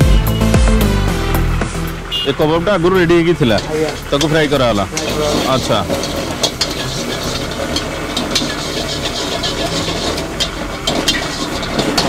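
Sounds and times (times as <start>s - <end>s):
frying hiss: 1.4s - 12.0s
metal spatula scraping frying pan: 3.2s - 12.0s.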